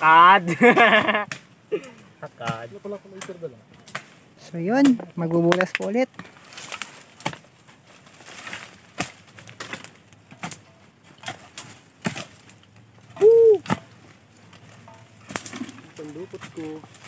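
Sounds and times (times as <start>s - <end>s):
digging knocks and scrapes: 2.3s - 17.0s
rising and falling ooh call: 13.2s - 13.7s.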